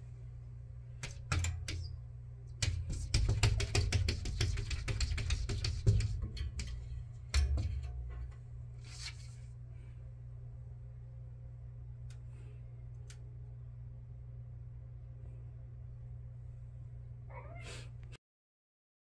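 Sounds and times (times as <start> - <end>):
cat claws scratching glass: 1.0 - 7.9.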